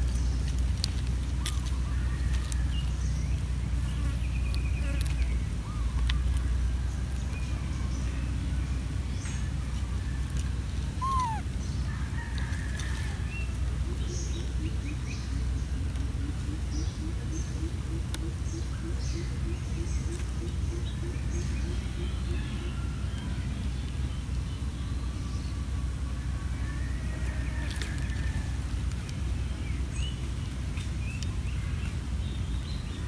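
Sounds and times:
birds chirping: 0.0s - 33.0s
steady low rumble: 0.0s - 33.0s
repeated low bird call: 10.9s - 11.9s
falling whistle: 11.0s - 11.4s.

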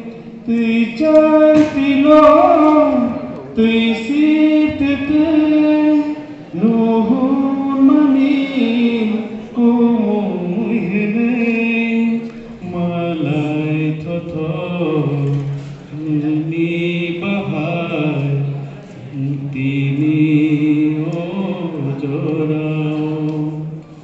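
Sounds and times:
voices singing slow chant: 0.0s - 24.0s.

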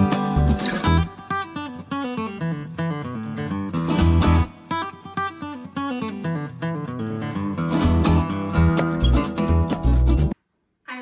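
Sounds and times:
bass line: 0.0s - 1.1s
acoustic guitar picking: 0.0s - 10.4s.

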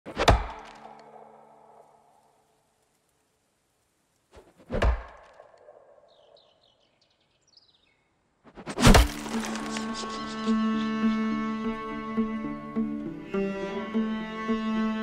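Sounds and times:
bird chirps: 5.4s - 8.2s.

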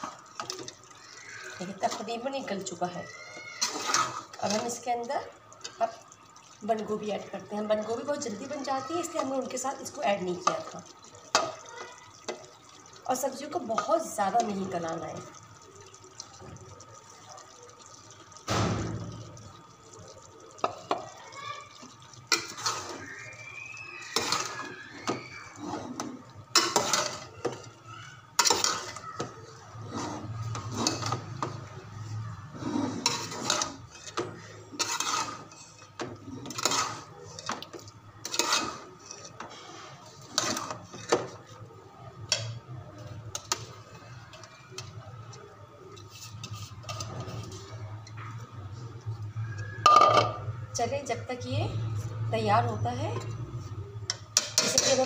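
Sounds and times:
metal spoon scraping pot: 3.6s - 4.9s, 24.2s - 27.6s, 28.4s - 29.0s, 29.8s - 41.4s, 45.9s - 47.8s, 54.1s - 55.0s.

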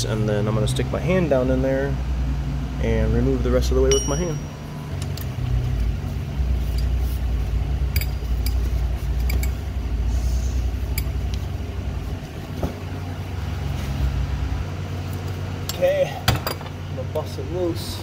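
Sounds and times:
steady low hum: 0.0s - 18.0s
ratchet and socket clinking: 7.9s - 9.6s.

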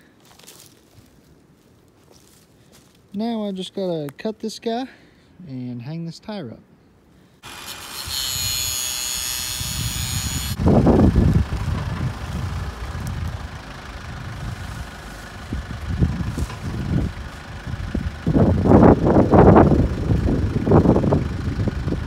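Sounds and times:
tractor diesel engine running: 7.4s - 22.0s.

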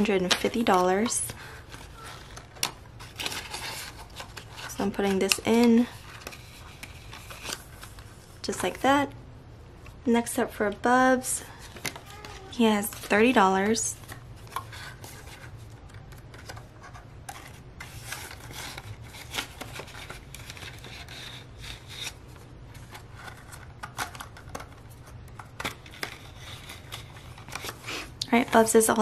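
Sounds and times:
paper bills rustling: 11.6s - 28.7s.

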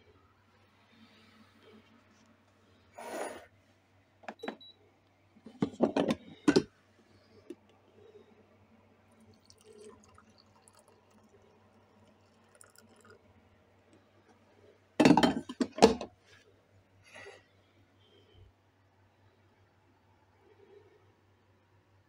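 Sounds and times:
coffee pouring into cup: 9.0s - 13.5s.

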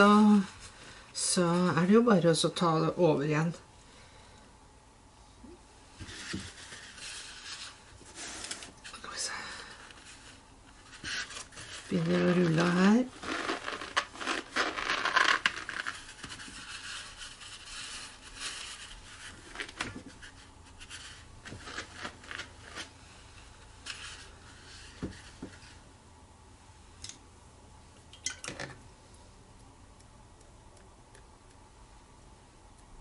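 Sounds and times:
paper towel rustling and crinkling: 6.0s - 9.0s, 9.6s - 25.8s.

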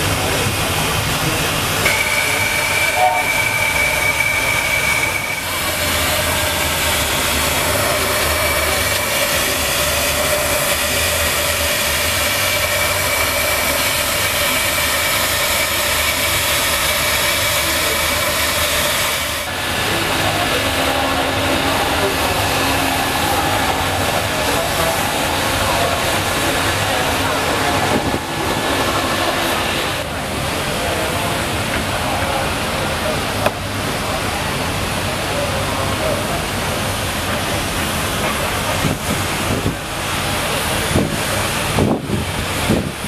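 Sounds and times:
steam hissing: 0.0s - 43.0s
steam traction engine running: 0.0s - 43.0s
thin high whine: 1.8s - 14.6s.

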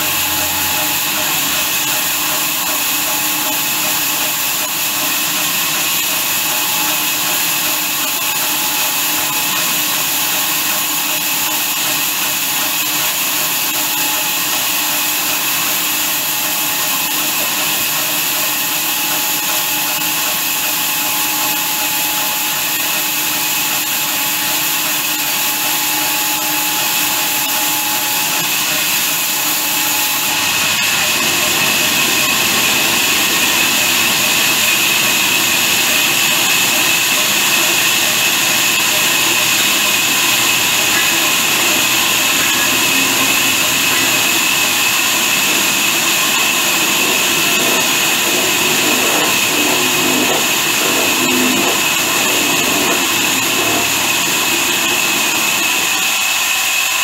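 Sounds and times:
saw blade hissing through log: 12.5s - 57.0s.

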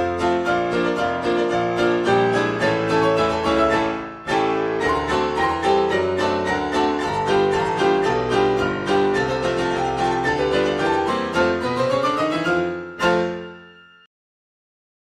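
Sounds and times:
keyboard music: 0.0s - 14.0s.

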